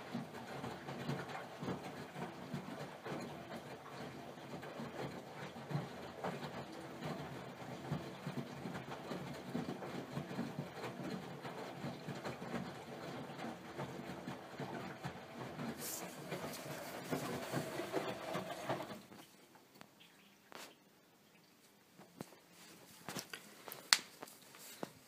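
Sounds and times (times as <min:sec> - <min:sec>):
small knocks in washing machine: 0:00.0 - 0:19.1
washing machine drum churning: 0:00.0 - 0:19.2.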